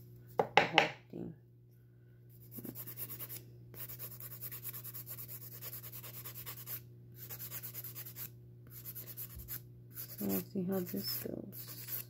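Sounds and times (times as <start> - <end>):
nail file scraping fingernail: 2.5 - 12.0.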